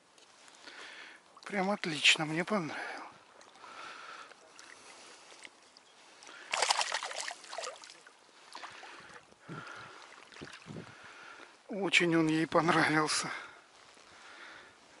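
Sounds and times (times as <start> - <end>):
water sloshing and splashing: 1.3 - 11.4.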